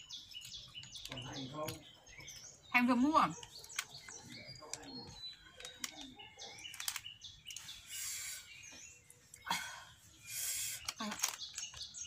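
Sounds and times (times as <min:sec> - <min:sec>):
small birds chirping: 0:00.0 - 0:12.0
snack packet crinkling: 0:05.6 - 0:07.1, 0:10.8 - 0:11.9.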